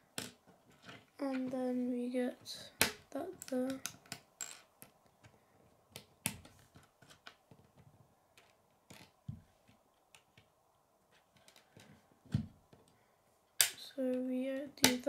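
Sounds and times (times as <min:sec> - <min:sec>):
plastic pieces clicking together: 0:08.4 - 0:09.2, 0:11.2 - 0:11.9, 0:14.8 - 0:15.0.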